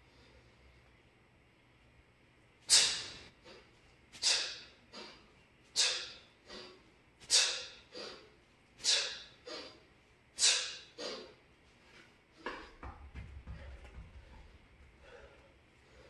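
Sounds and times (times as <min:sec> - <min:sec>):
forceful hissing breaths: 0:02.7 - 0:03.6, 0:04.2 - 0:11.3.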